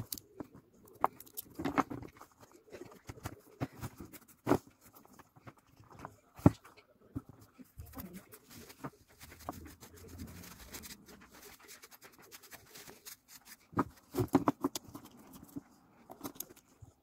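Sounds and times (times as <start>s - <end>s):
plastic parts clicking and knocking: 0.0s - 8.1s, 13.6s - 17.0s
tissue paper rubbing on metal: 8.0s - 13.7s.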